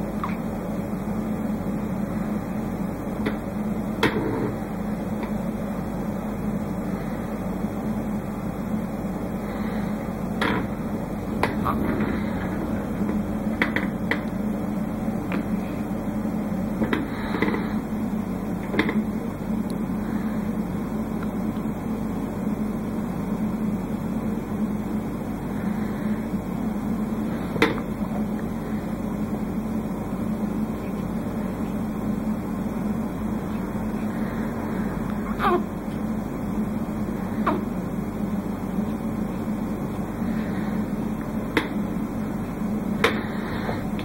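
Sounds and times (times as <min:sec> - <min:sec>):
low mechanical hum: 0:00.0 - 0:44.0.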